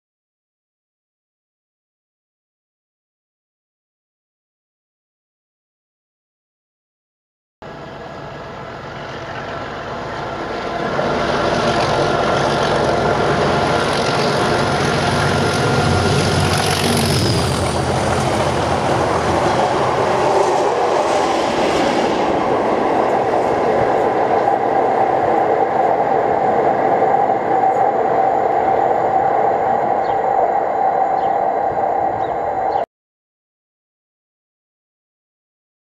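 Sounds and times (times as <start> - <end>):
diesel locomotive engines: 7.6 - 32.9
wheels on rails: 7.7 - 32.8.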